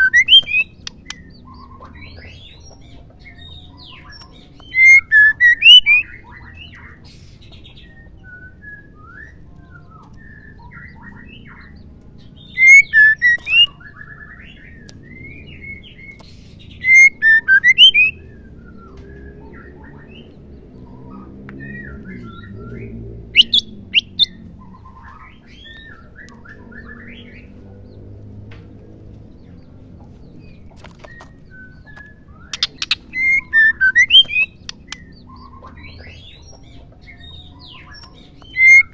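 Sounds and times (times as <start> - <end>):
sharp bird clicks: 0.0 - 2.9, 12.6 - 13.8, 30.8 - 35.9
bird calling: 0.0 - 11.8, 12.4 - 27.6, 30.8 - 38.9
soft bird chirps and whistles: 0.0 - 27.6, 30.3 - 38.9.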